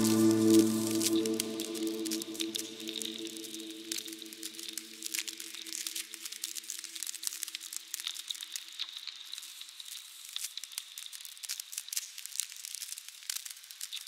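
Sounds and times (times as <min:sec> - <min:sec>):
ice crackling and fizzing: 0:02.8 - 0:14.0.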